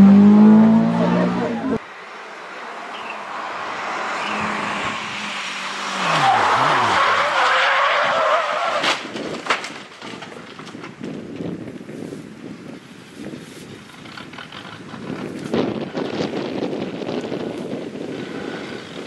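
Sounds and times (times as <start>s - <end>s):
car engine revving down: 0.0s - 1.8s
tyres squealing: 5.9s - 9.1s
car crashing: 5.9s - 11.3s
debris clattering: 8.7s - 11.2s.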